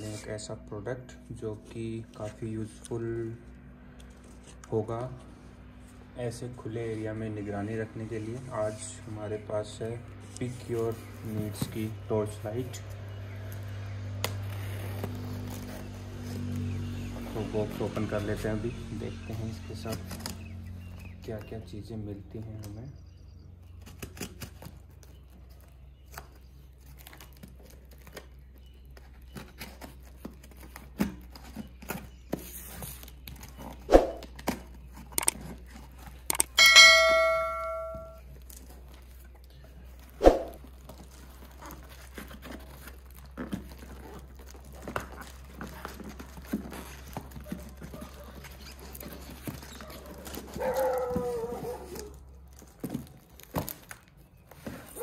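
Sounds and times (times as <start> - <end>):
packaging clicks and taps: 34.4 - 35.5, 36.2 - 36.6
steady low hum: 36.1 - 38.3
ringing ding: 36.5 - 38.2
dog whining: 49.6 - 52.2.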